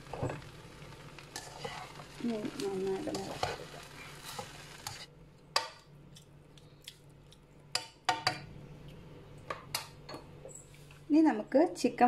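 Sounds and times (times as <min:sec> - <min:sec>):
soft frying hiss: 0:00.0 - 0:12.0
spatula stirring rice: 0:01.1 - 0:05.7.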